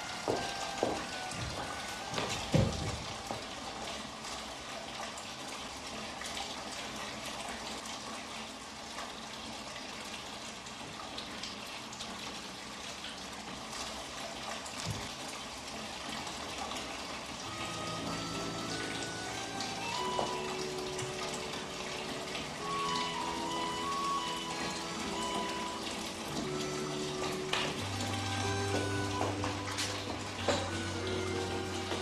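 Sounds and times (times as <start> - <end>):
music: 0.0 - 3.3, 17.4 - 32.0
water running from a tap: 0.0 - 32.0.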